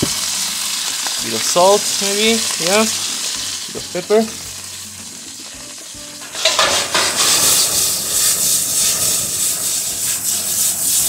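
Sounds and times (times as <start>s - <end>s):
beef sizzling in a wok: 0.0s - 11.0s
spatula scraping a wok: 5.0s - 11.0s.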